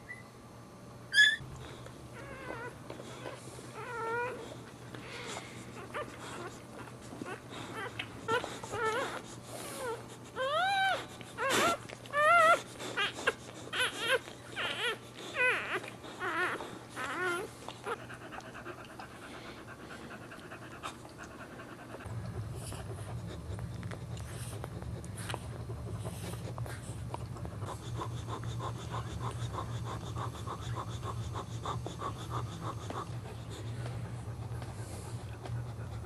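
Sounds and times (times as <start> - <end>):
low steady hum: 0.0 - 36.0
puppy squealing: 1.1 - 1.5, 7.6 - 18.1.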